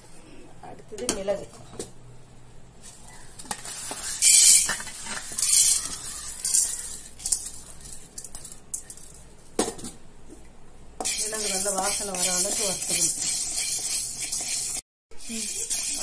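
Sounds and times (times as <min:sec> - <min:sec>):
peppercorns rattling into metal pan: 0:03.5 - 0:09.3, 0:11.0 - 0:16.0.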